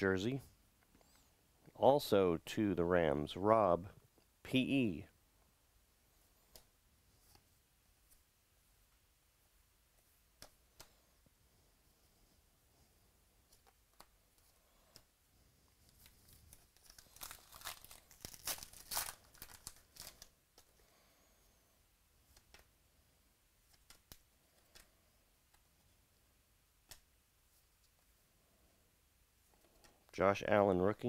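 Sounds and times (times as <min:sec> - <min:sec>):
faint ticks of cards handled: 0:13.4 - 0:15.2, 0:23.6 - 0:25.7
card pack wrapper crinkling: 0:15.8 - 0:20.4.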